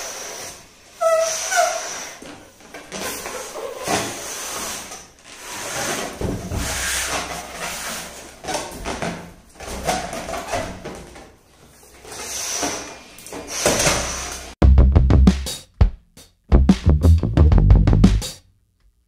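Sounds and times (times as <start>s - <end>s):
breathy puffs into balloons: 0.0s - 2.6s.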